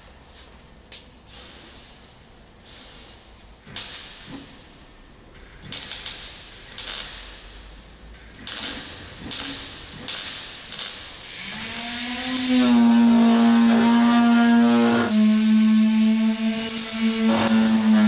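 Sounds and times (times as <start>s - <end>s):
welder crackling on sheet steel: 3.6s - 4.5s, 5.4s - 18.0s.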